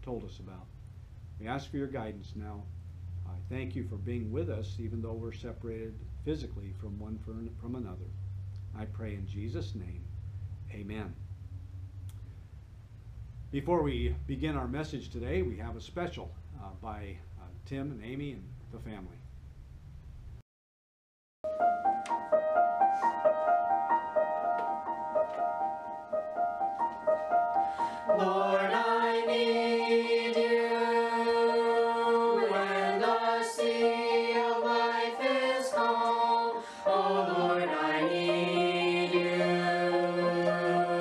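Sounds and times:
piano single notes: 21.5s - 29.2s
mixed voices singing in harmony: 27.6s - 41.0s.

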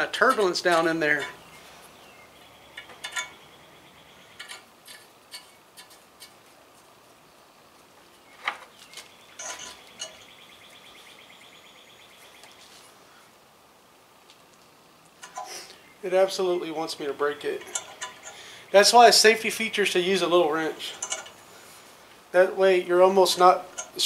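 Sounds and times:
metal tap and wrench clicking: 21.0s - 21.4s, 23.7s - 24.0s.

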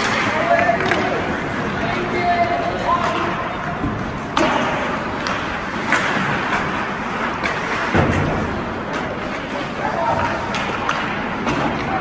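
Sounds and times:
skating and rink noise: 0.0s - 12.0s
hockey stick cracking puck: 4.3s - 6.7s, 10.2s - 11.9s.

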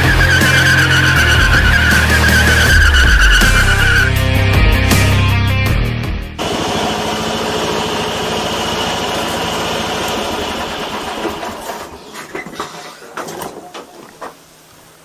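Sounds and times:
lawn mower engine running: 0.0s - 5.1s, 6.4s - 14.2s
knocks and clatters: 11.0s - 14.4s.

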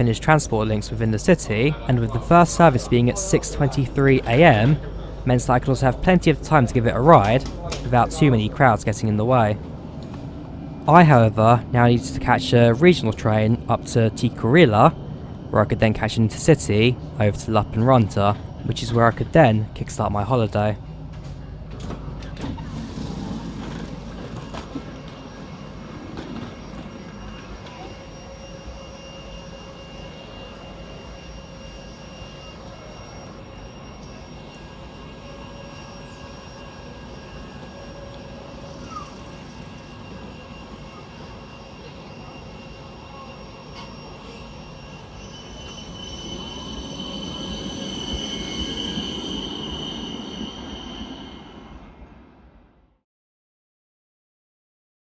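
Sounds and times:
faint high whine: 0.0s - 52.9s
tram rumble: 0.0s - 53.0s.

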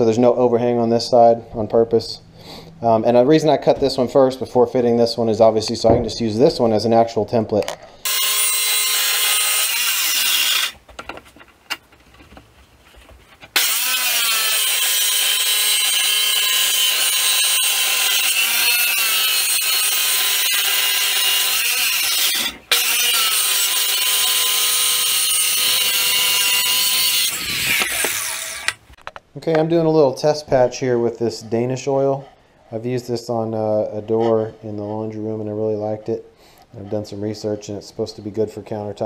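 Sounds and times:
circular saw cutting wood: 8.0s - 10.8s, 13.5s - 28.8s, 33.2s - 35.6s.

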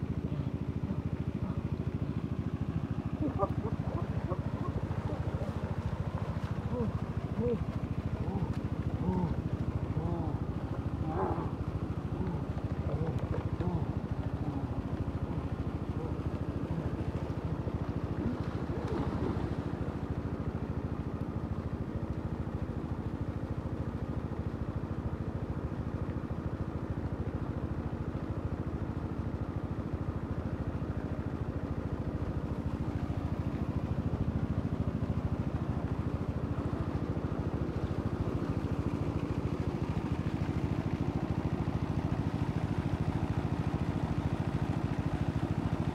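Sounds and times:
water pump engine humming: 0.0s - 45.9s
water splashing into pond: 3.3s - 20.6s.

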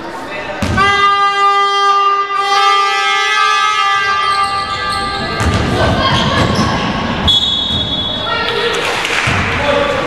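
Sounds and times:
horn-like tone: 0.8s - 5.4s
referee whistle: 0.8s - 5.5s, 7.2s - 8.4s.

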